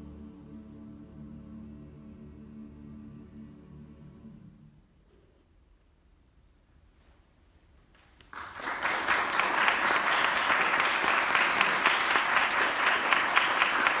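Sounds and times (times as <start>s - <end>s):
audience applause: 8.2s - 14.0s.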